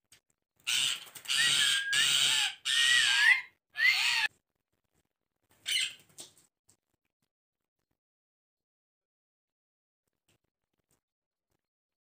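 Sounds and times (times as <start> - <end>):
parrots screeching: 0.6 - 4.3, 5.6 - 6.0.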